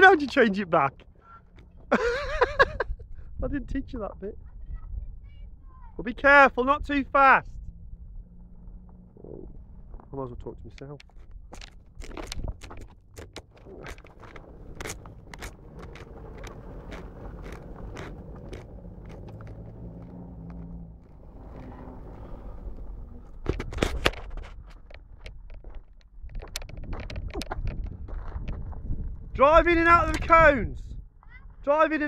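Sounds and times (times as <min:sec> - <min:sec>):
distant vehicle engine: 0:06.5 - 0:25.5
microphone handling noise: 0:09.1 - 0:30.4
wind on microphone: 0:11.2 - 0:31.7
low rumble: 0:13.6 - 0:25.2.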